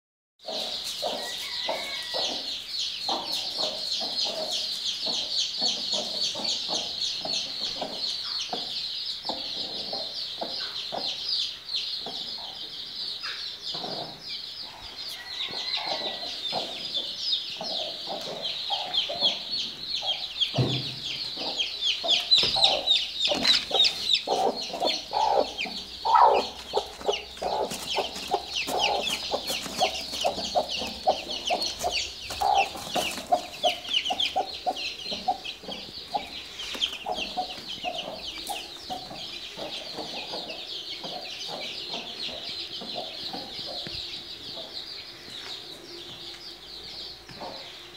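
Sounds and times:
chicks peeping: 0.4 - 47.9
hen clucking: 3.1 - 11.2, 15.1 - 44.0
low thump: 20.5 - 21.0.

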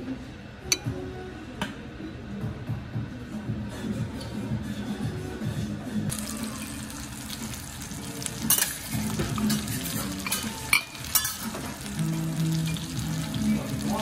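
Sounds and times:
fish sizzling in oil: 6.1 - 14.0
metal utensils clicking on griddle: 8.3 - 12.0.

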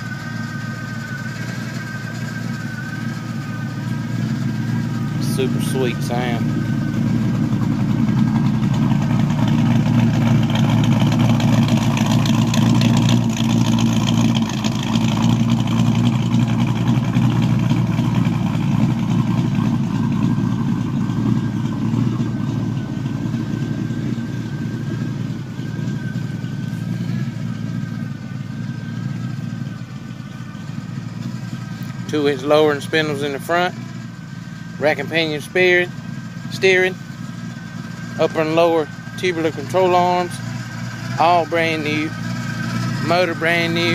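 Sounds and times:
car engine idling choppily: 0.0 - 43.9.

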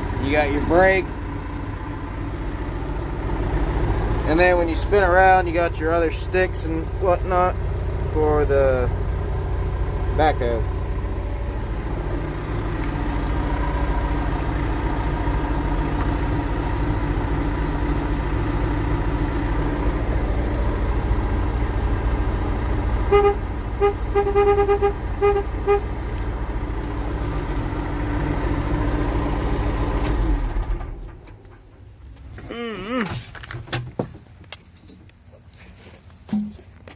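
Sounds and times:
diesel engine idling: 0.0 - 36.9
short horn toots: 23.1 - 25.9.

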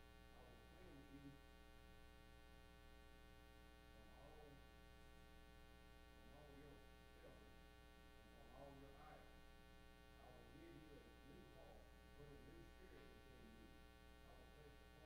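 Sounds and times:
electrical hum: 0.0 - 15.0
faint voice speaking: 0.4 - 1.4, 4.0 - 4.7, 6.2 - 7.6, 8.3 - 9.4, 10.2 - 15.0.

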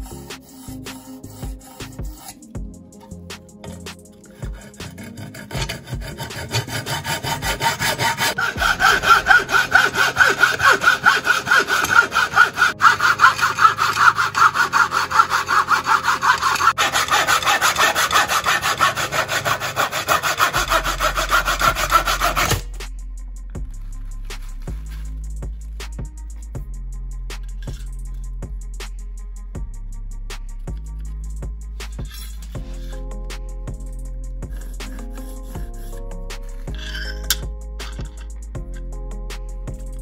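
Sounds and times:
hacksaw cutting wood: 3.6 - 22.8, 34.6 - 36.0, 36.7 - 38.2.

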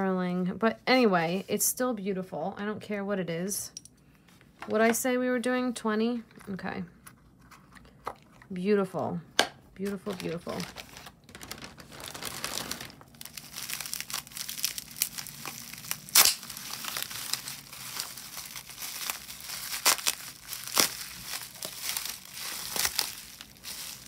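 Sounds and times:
packaging crinkling and rustling: 9.8 - 24.0
sharp crackles: 10.1 - 24.0.

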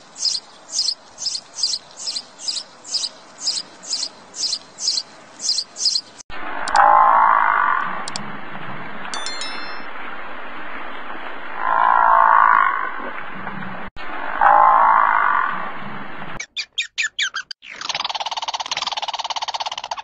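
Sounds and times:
sharp chirps: 0.0 - 6.2, 9.2 - 9.9
steady background hiss: 0.0 - 6.2
animal calls: 0.0 - 7.5.

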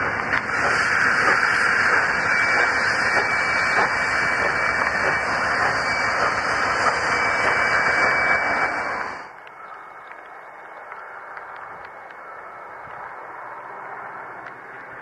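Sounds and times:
steam locomotive hissing steam: 0.0 - 9.3
freight train wheels running past: 0.0 - 9.4.

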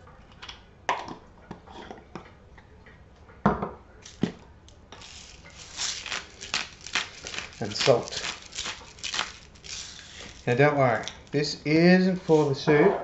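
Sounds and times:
containers clicking and knocking: 5.0 - 11.5.

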